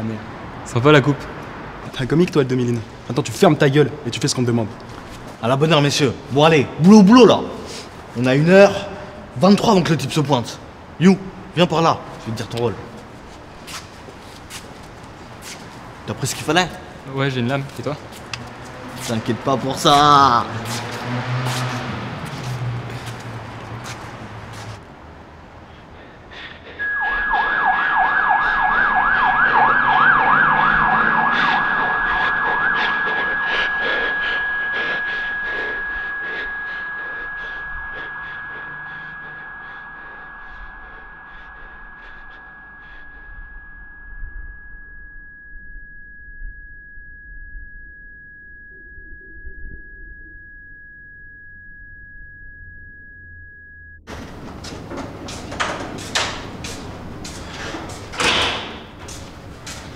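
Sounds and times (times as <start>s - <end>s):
high-pitched ringing tone: 18.9s - 20.6s, 26.8s - 54.4s
siren yelping: 26.7s - 54.1s
low rumble: 30.4s - 54.5s.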